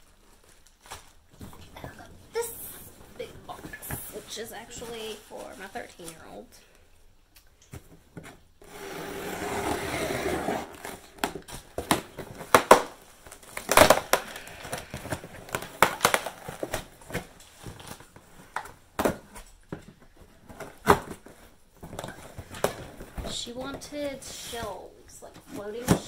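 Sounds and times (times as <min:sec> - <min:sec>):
cardboard tearing: 0:08.6 - 0:18.1
packaging crackles and knocks: 0:10.8 - 0:23.8.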